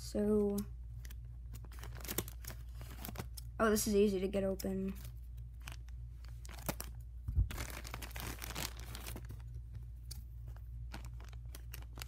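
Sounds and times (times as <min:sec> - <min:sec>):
plastic bag crinkling: 0:01.5 - 0:03.4, 0:04.8 - 0:09.7, 0:10.5 - 0:12.0
plastic tearing: 0:01.5 - 0:03.4, 0:05.6 - 0:09.4, 0:10.9 - 0:12.0.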